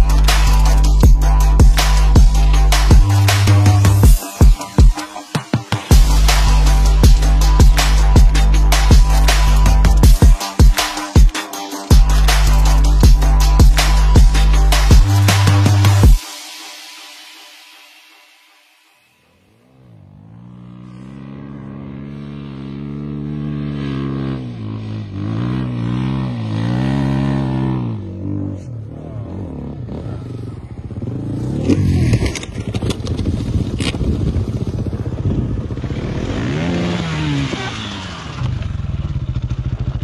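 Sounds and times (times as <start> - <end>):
dirt bike engines revving: 19.6 - 39.4.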